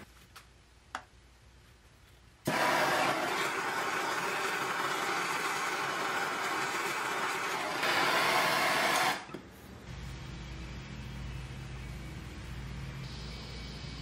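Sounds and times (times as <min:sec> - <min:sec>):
gas torch flame hissing: 0:02.4 - 0:09.3.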